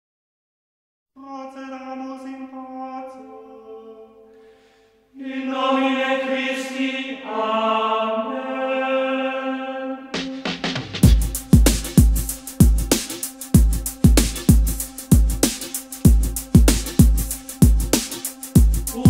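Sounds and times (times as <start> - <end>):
voices chanting long notes: 1.2 - 11.5, 15.7 - 19.0.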